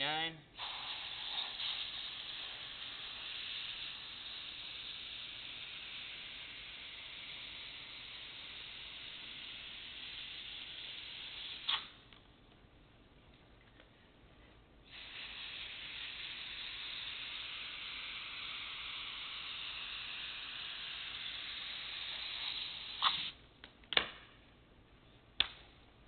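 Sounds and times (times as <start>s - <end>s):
compressed air hissing from nozzle: 0.6s - 12.0s, 14.8s - 23.4s.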